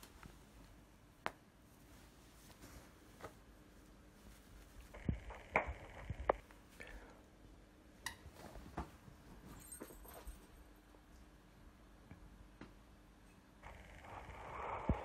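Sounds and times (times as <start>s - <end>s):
faint knocks and rustling: 8.2s - 10.6s.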